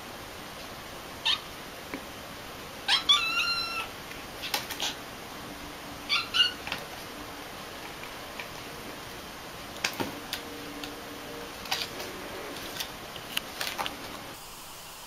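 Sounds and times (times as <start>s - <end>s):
kitten mewing: 1.2s - 1.5s, 2.8s - 5.0s, 6.1s - 6.7s.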